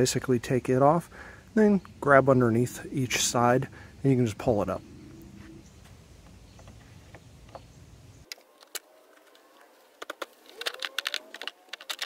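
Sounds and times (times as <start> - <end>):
faint low rumble: 0.2 - 8.2
plastic clicks and snaps: 8.3 - 12.0.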